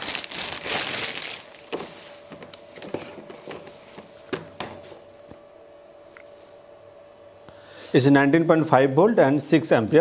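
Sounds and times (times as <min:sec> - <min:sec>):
plastic packaging crinkling: 0:00.0 - 0:03.2.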